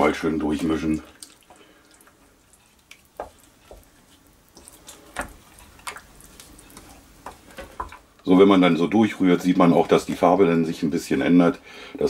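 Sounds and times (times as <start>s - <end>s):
spatula stirring thick sauce: 0.0s - 8.2s
spatula knocking against crock: 3.2s - 3.9s.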